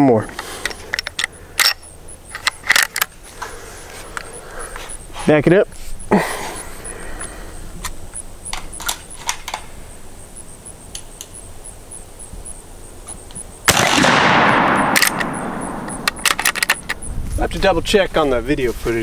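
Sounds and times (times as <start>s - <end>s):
rifle handling clicks: 0.3s - 3.1s, 7.8s - 9.7s, 13.7s - 17.0s
rifle shot ringing: 13.7s - 16.6s.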